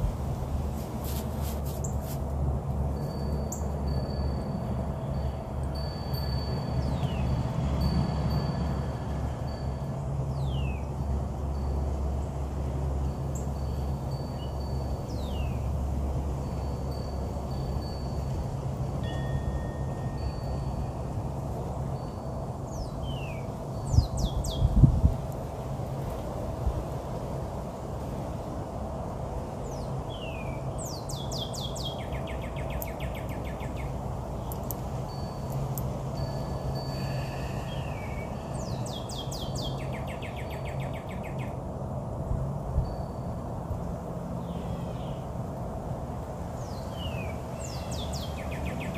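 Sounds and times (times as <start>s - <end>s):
songbirds calling: 4.9s - 7.9s, 10.3s - 11.0s, 13.2s - 18.0s, 22.0s - 24.9s, 29.6s - 41.7s, 43.8s - 45.4s, 46.4s - 48.9s.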